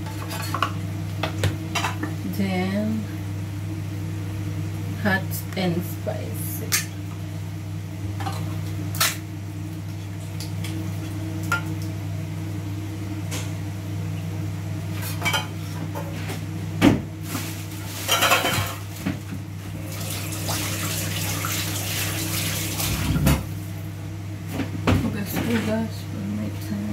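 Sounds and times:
steady low hum: 0.0 - 26.9.

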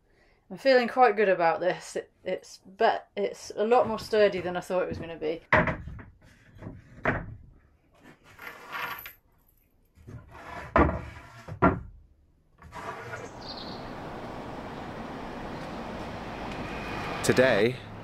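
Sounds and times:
steady background hiss: 13.3 - 18.0.

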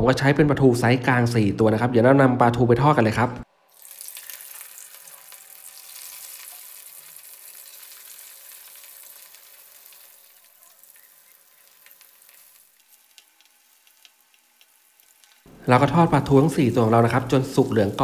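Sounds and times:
fish sizzling in hot oil: 3.7 - 15.5
oil pops and crackles: 3.8 - 15.5.

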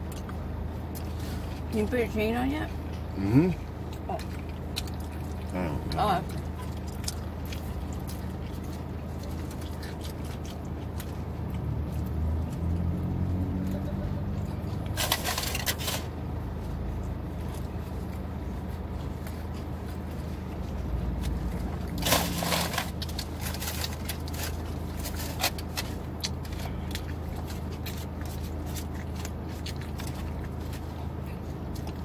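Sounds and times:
chewing: 0.0 - 1.7, 2.6 - 32.0
low hum inside car: 0.0 - 32.0.

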